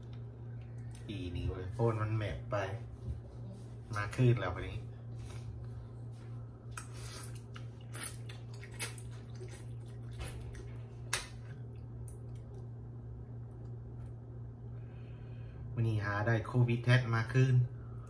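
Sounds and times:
steady low hum: 0.0 - 18.0
chewing: 6.7 - 12.6.

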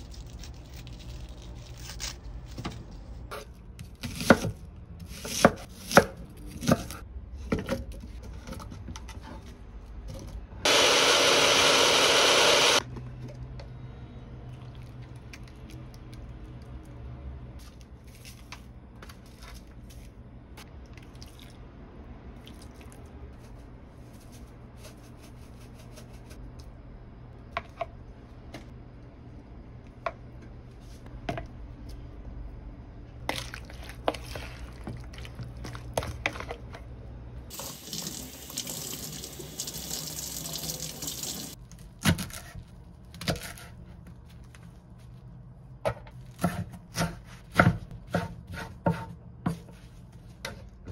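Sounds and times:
kitchen tap running: 37.5 - 41.6.

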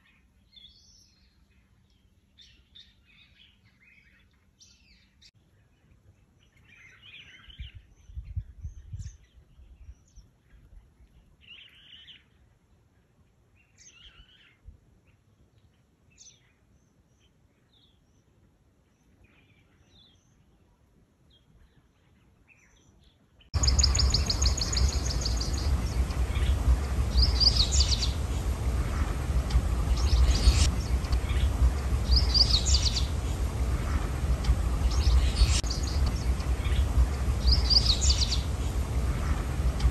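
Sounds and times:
birds chirping: 23.6 - 39.9
low rumble: 23.6 - 39.9.

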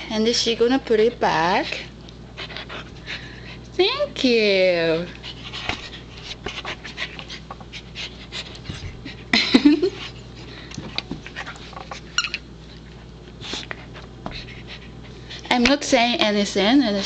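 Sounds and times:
dog panting: 0.7 - 3.8, 4.9 - 15.6.

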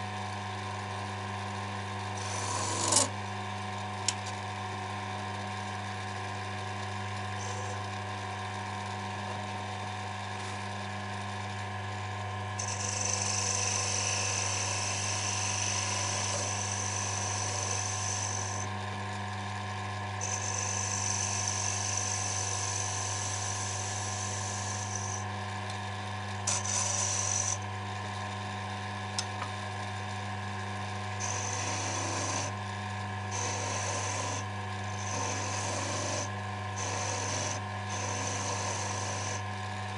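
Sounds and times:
wood lathe humming: 2.2 - 3.1, 7.3 - 8.0, 12.4 - 18.8, 19.4 - 25.8, 26.4 - 27.7, 31.2 - 39.7
hand tool scraping spinning wood: 12.6 - 18.7, 26.5 - 27.6, 31.2 - 32.5, 33.3 - 34.4, 35.0 - 39.4.

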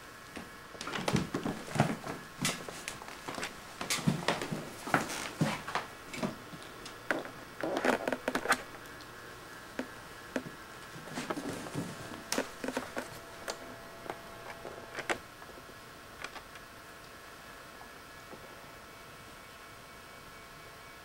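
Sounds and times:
faint steady hum: 0.0 - 21.0
footsteps on hardwood floor: 0.7 - 6.5, 9.8 - 14.2.

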